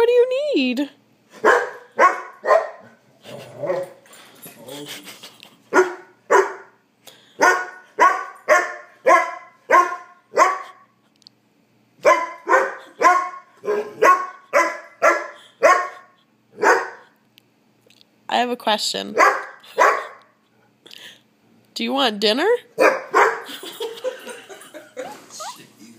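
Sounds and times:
puppy barking: 0:01.4 - 0:03.0, 0:05.7 - 0:06.8, 0:07.4 - 0:10.9, 0:12.0 - 0:17.2, 0:19.1 - 0:20.4, 0:22.8 - 0:23.5.

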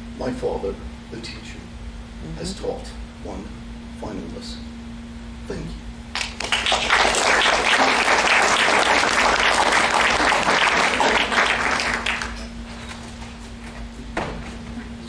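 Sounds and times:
audience applauding: 0:06.2 - 0:12.5.

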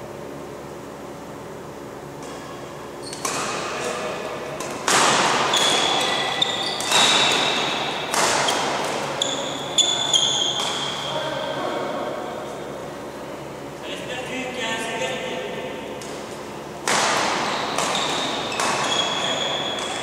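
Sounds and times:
racket striking shuttlecock: 0:02.2 - 0:11.2, 0:16.0 - 0:20.0
shoes squeaking on court floor: 0:02.3 - 0:11.7, 0:16.1 - 0:20.0.

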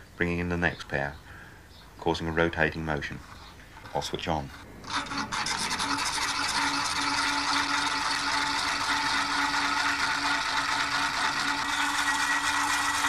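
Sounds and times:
low steady hum: 0:00.0 - 0:13.0
electric motor rattling buzz: 0:04.6 - 0:13.0.

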